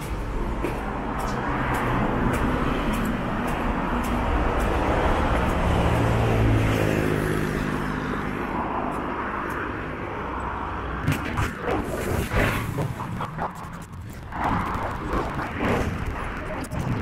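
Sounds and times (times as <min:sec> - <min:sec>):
vehicle passing by: 0:00.1 - 0:11.0.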